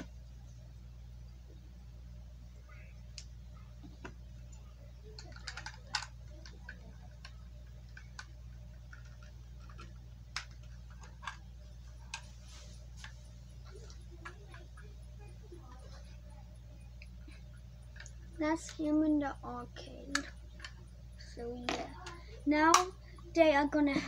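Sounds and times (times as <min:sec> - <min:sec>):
steady low hum: 0:00.0 - 0:24.0
plastic bricks clicking: 0:05.2 - 0:11.4.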